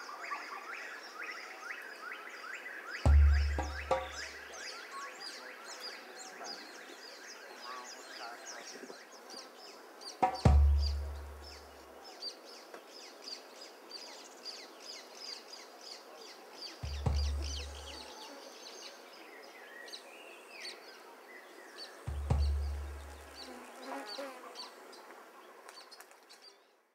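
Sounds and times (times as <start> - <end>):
small birds chirping: 0.0 - 26.9
deep booming hits: 3.1 - 4.3, 10.4 - 11.6, 16.9 - 18.0, 22.1 - 23.4.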